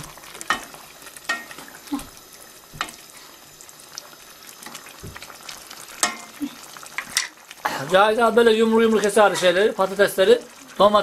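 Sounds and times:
faint frying hiss: 0.0s - 11.0s
spoon knocking and scraping pot: 1.3s - 1.6s, 6.0s - 6.4s.

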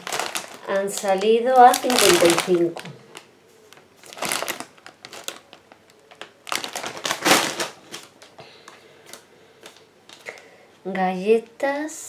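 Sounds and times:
plastic crisp bag crinkling: 0.0s - 8.4s.

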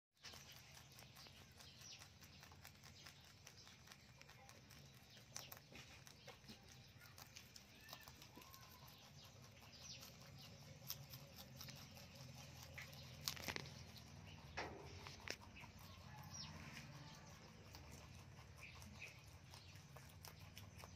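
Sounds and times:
rabbits chewing greens: 0.1s - 20.9s.

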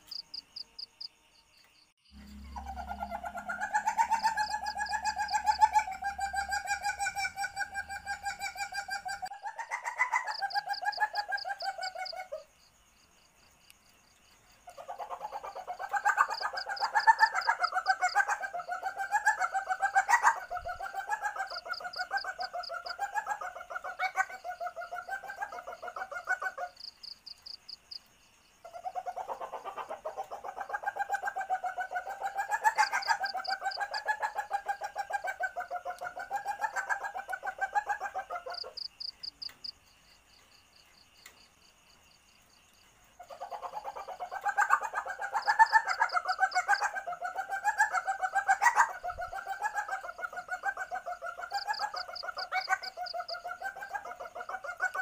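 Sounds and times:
civet pulsing chattering calls: 2.2s - 12.2s.

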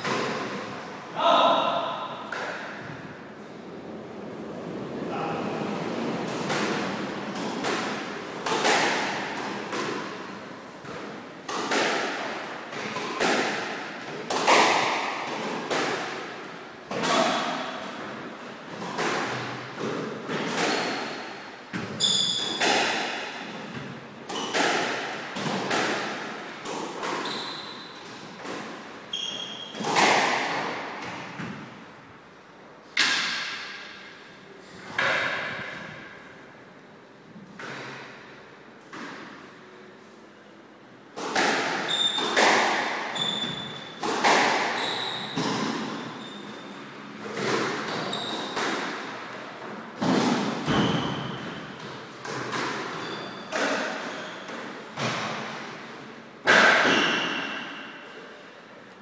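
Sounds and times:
squash ball cracks echoing: 1.6s - 3.0s, 6.3s - 18.1s, 18.8s - 27.2s, 29.8s - 31.8s, 33.0s - 34.0s, 35.0s - 36.3s, 41.1s - 46.1s, 47.2s - 55.8s, 56.4s - 58.0s
shoes squeaking on wooden floor: 21.9s - 22.6s, 27.2s - 28.0s, 43.2s - 43.8s, 44.8s - 45.5s, 48.1s - 48.4s, 52.9s - 53.5s.

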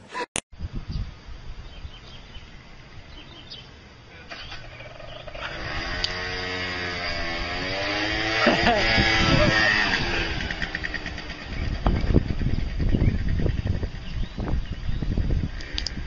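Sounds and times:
faint outdoor background: 0.0s - 16.0s
engine revving: 4.3s - 13.6s.

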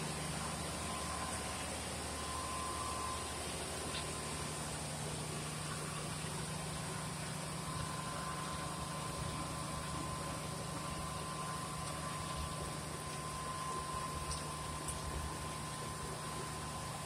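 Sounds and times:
machinery humming: 0.0s - 17.0s
thin high whine: 0.0s - 17.0s.

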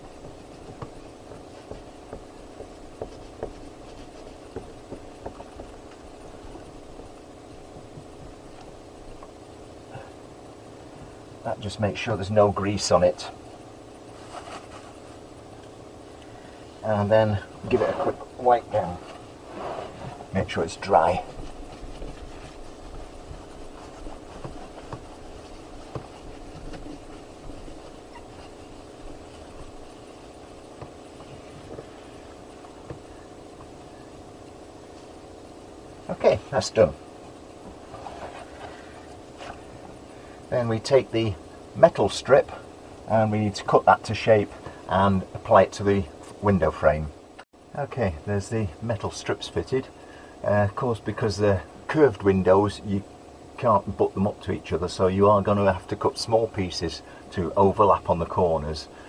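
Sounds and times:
wipe rubbing a window frame: 0.0s - 8.6s, 14.0s - 15.3s, 18.8s - 34.1s, 37.7s - 40.0s
steady low hum: 0.0s - 59.0s.

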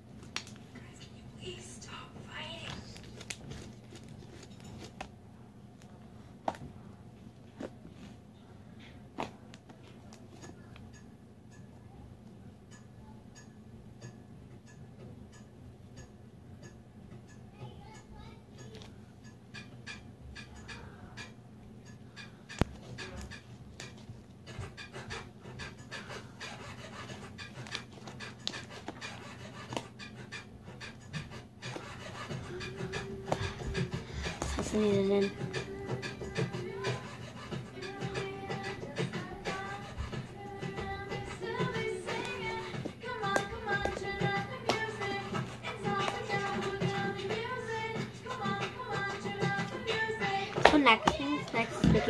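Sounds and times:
rapid rhythmic panting: 18.6s - 52.0s.

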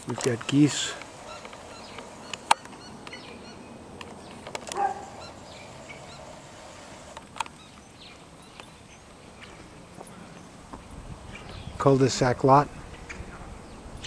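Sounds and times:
sharp clicks: 0.1s - 4.9s, 7.1s - 7.6s.

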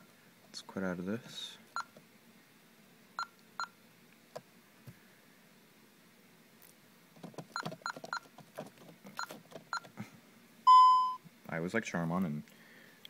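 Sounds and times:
alarm keypad beeps: 10.7s - 11.2s.

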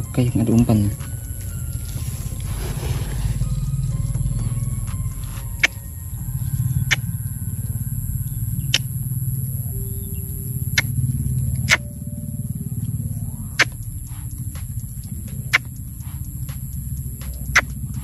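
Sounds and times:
faint high whine: 0.0s - 18.0s
steady low rumble: 0.0s - 18.0s
sharp clicks: 13.6s - 18.0s.

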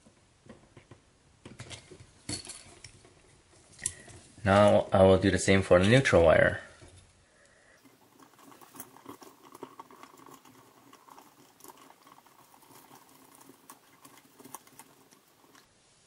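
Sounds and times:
small clicks and scratching: 7.8s - 15.7s.

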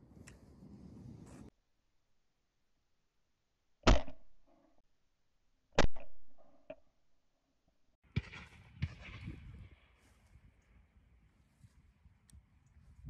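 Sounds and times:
shotgun shots: 3.9s - 4.2s, 8.1s - 9.9s.

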